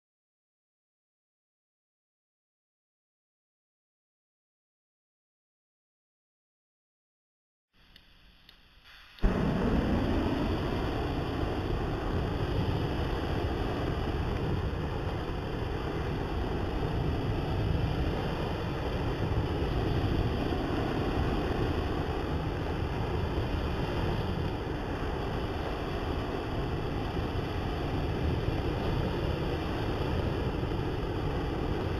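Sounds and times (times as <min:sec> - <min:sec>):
flame burning with loud rush: 0:07.8 - 0:31.9
flamethrower igniting pop: 0:08.9 - 0:31.9.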